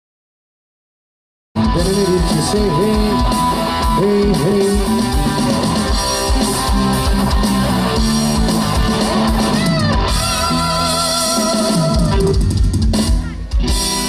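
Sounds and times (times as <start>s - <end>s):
live band with electric guitar: 1.6s - 14.0s.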